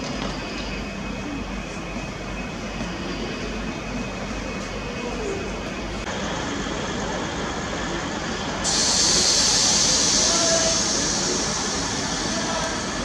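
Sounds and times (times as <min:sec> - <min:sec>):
rail vehicle rumbling on track: 0:00.0 - 0:13.0
loud hiss: 0:06.2 - 0:13.0.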